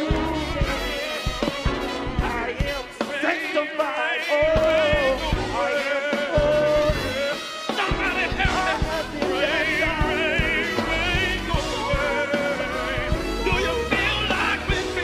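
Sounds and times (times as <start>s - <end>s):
drum hits: 4.4s - 15.0s.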